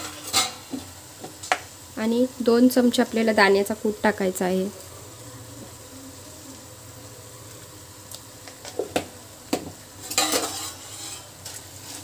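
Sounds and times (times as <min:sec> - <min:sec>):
utensil scraping a pan: 0:00.0 - 0:00.9, 0:10.0 - 0:12.0
masala sizzling in a pan: 0:00.0 - 0:12.0.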